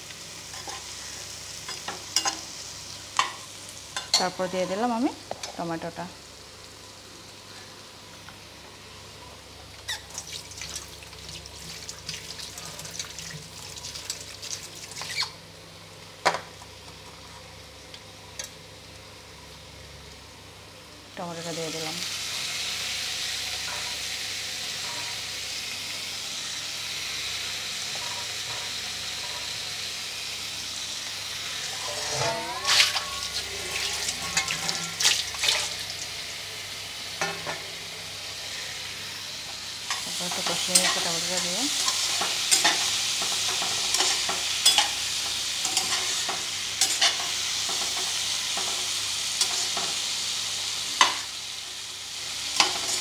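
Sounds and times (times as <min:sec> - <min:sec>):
tomatoes sizzling in hot oil: 0:00.0 - 0:53.0
metal spatula scraping a pan: 0:31.6 - 0:35.6.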